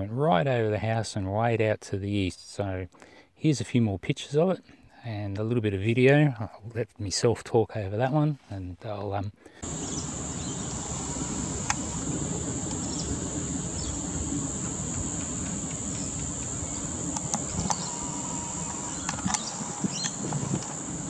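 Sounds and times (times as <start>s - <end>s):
insect high-pitched note: 9.6s - 21.0s
low background rumble: 9.6s - 21.0s.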